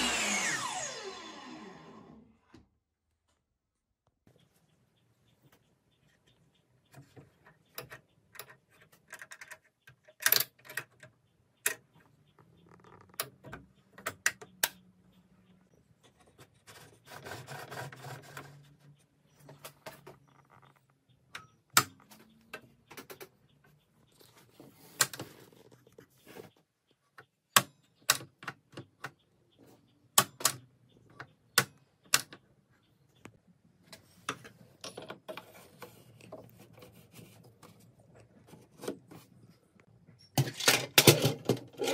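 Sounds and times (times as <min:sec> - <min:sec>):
plastic and metal parts clicking: 0:07.0 - 0:14.8.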